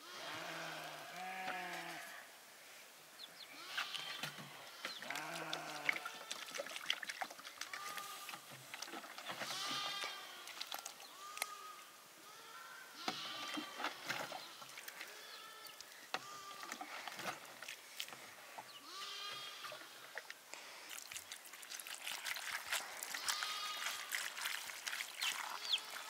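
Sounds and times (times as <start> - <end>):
sheep bleating: 0.0 - 2.3, 3.5 - 6.2, 9.4 - 10.5, 11.1 - 13.8, 18.8 - 20.0, 23.1 - 24.1.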